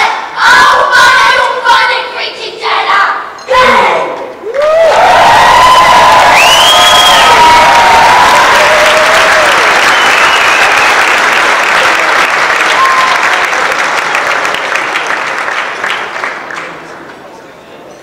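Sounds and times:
audience applauding: 4.6s - 17.1s.

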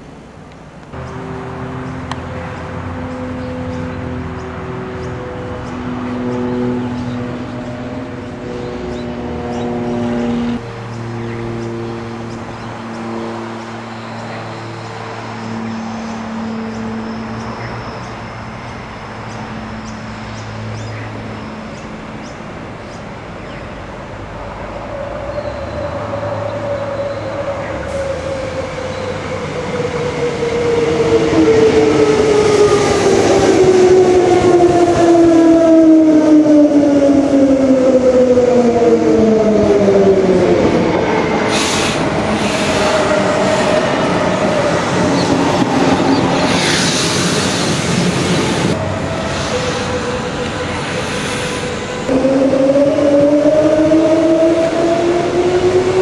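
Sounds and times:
electric train arriving: 10.3s - 56.0s
hiss bursts: 41.5s - 43.7s, 46.4s - 48.6s, 50.8s - 52.0s.

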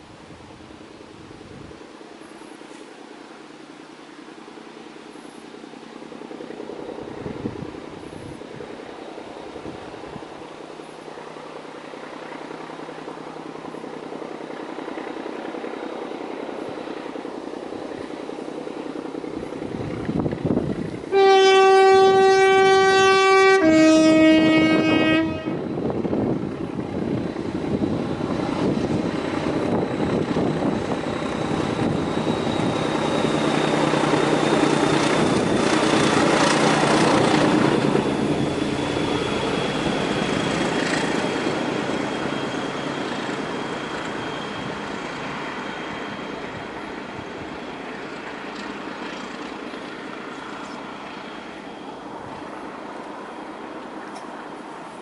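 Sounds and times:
diesel locomotive engine: 0.0s - 55.0s
train passing at speed: 0.0s - 55.0s
two-tone train horn: 21.1s - 25.8s.

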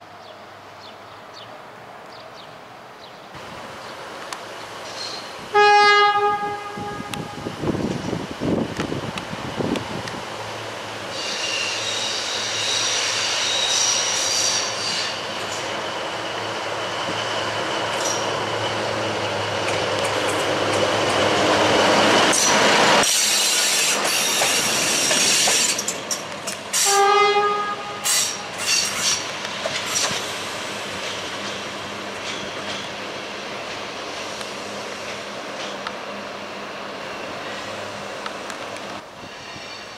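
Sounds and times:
horn toot: 5.5s - 7.4s
wheel squeal: 11.1s - 16.5s.

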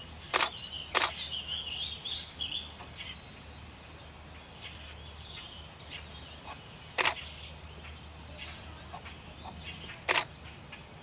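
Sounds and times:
nestlings begging chatter: 0.0s - 11.0s
sharp click: 0.3s - 1.2s, 7.0s - 7.2s, 10.1s - 10.3s.

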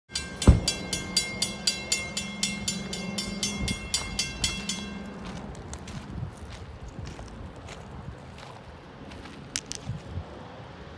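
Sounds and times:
railroad crossing bell ringing: 0.1s - 6.1s.

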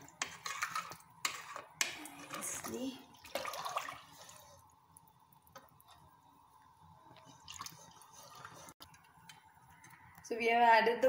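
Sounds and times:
spatula stirring in pot: 0.0s - 9.9s
water sloshing: 2.1s - 4.6s, 7.2s - 8.8s.

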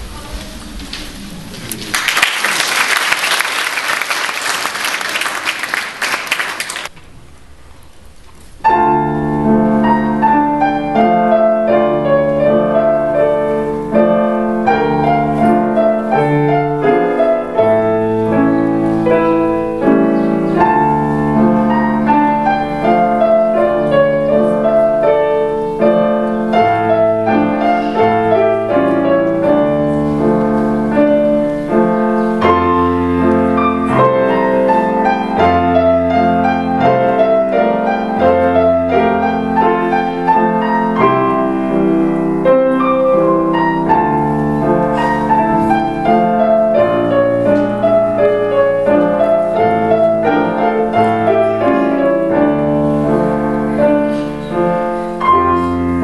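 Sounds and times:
audience applause: 1.6s - 7.0s
classical piano piece: 8.1s - 56.0s.

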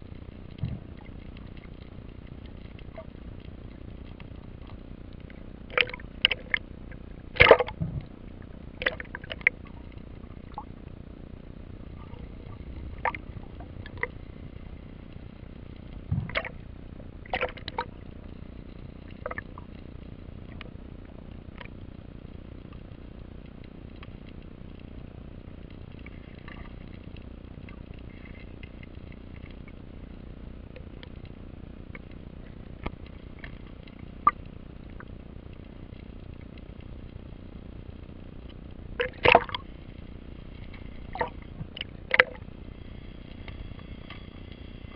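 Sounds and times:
underwater low rush: 0.0s - 44.9s
sharp underwater clicks and knocks: 0.5s - 8.2s, 8.8s - 10.7s, 12.7s - 14.2s, 15.7s - 16.6s, 17.3s - 17.9s, 38.4s - 39.7s, 40.6s - 42.4s.

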